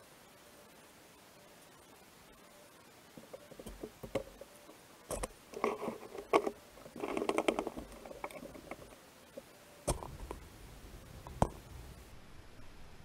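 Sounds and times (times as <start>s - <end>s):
wood-on-wood clicks and knocks: 3.2s - 4.5s, 5.1s - 9.0s, 11.2s - 11.7s
wood rubbing and scraping: 3.2s - 12.1s.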